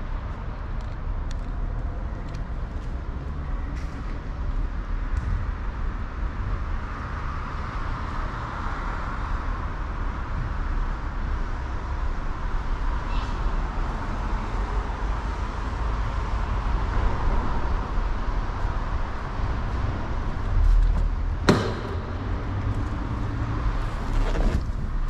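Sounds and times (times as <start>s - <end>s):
road traffic rumble: 0.0s - 25.0s
vehicle passing: 16.2s - 24.2s.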